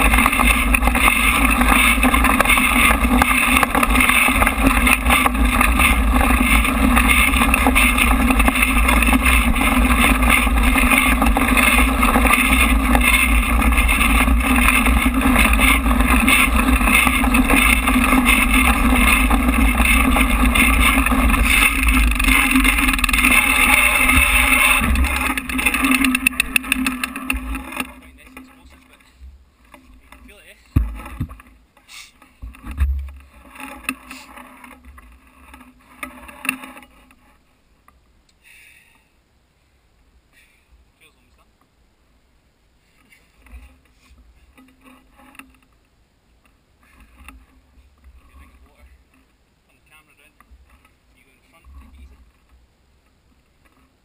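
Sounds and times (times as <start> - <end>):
wind buffeting: 0.0 - 28.2
mountain bike rumbling over dirt: 0.0 - 37.5, 43.1 - 45.8, 46.4 - 54.0.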